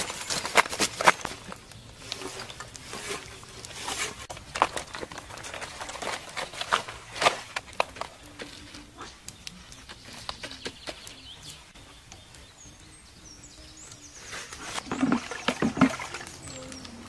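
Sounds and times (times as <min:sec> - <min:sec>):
bird chirps: 0:09.3 - 0:15.5, 0:16.1 - 0:17.0.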